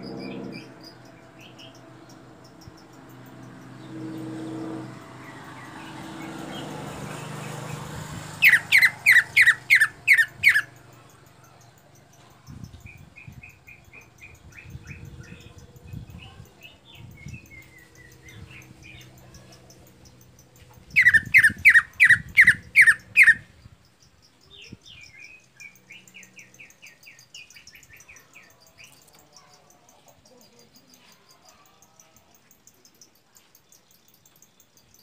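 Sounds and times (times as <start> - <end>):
faint insect chirping: 0.0 - 35.0
bird calling sharp notes: 8.4 - 10.7, 20.9 - 23.4.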